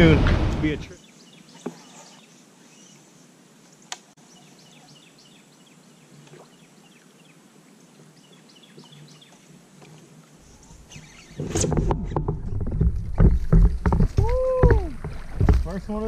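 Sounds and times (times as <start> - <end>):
riverside ambience: 0.0 - 4.2
small birds chirping: 0.8 - 9.6, 10.4 - 11.5.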